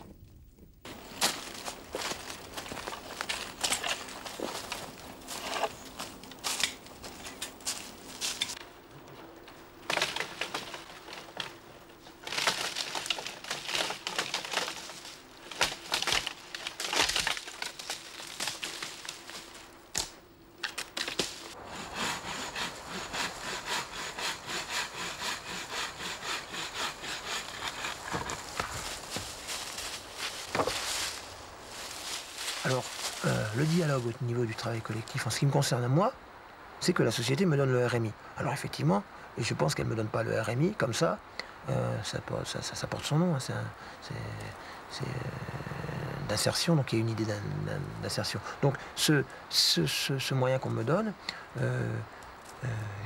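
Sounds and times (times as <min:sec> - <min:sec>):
footsteps crunching dry leaves: 0:00.9 - 0:08.6, 0:12.2 - 0:19.8, 0:27.3 - 0:35.0
twigs snapping: 0:00.9 - 0:21.6, 0:27.3 - 0:34.2.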